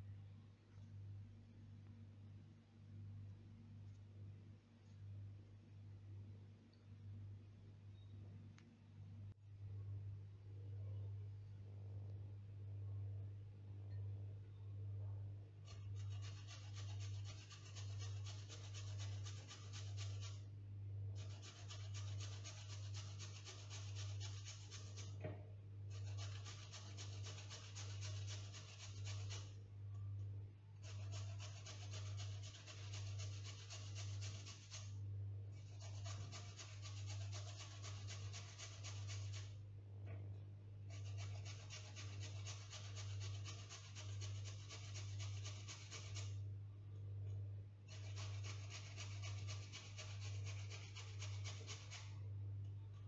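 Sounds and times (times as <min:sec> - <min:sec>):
steady low hum: 0:00.0 - 0:53.0
carrot rasping on grater: 0:15.7 - 0:20.5, 0:21.2 - 0:25.2, 0:25.9 - 0:29.6, 0:30.8 - 0:35.0, 0:35.6 - 0:39.6, 0:40.9 - 0:46.4, 0:47.9 - 0:52.2.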